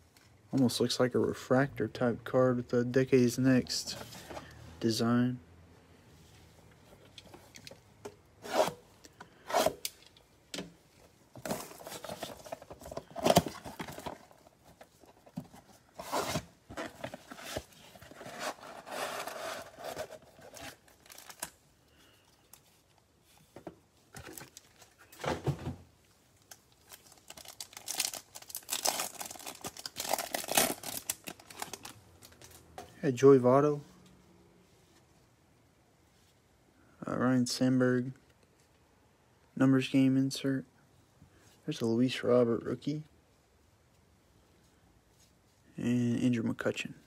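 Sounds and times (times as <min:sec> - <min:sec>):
cardboard tearing: 0:16.0 - 0:21.5, 0:27.3 - 0:31.9
foil packs crinkling: 0:26.8 - 0:32.6.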